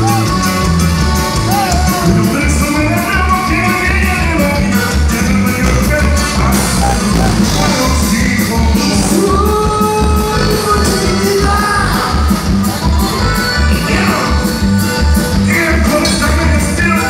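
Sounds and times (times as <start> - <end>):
accordion melody: 0.0 - 17.0
electric bass: 0.0 - 17.0
person singing: 1.4 - 14.6
drum beat: 1.4 - 17.0.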